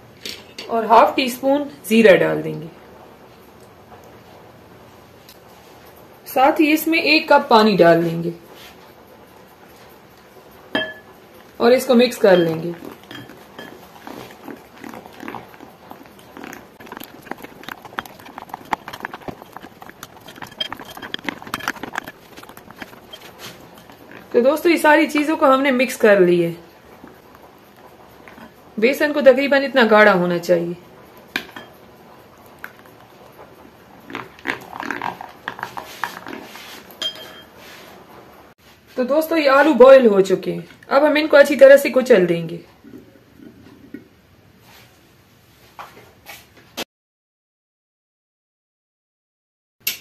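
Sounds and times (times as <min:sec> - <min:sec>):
spoon clinking glass bowl: 0:10.8 - 0:11.1, 0:12.3 - 0:13.8, 0:37.0 - 0:37.5
spatula scraping glass bowl: 0:12.2 - 0:16.2, 0:16.8 - 0:25.0
spoon beating batter: 0:12.3 - 0:24.3.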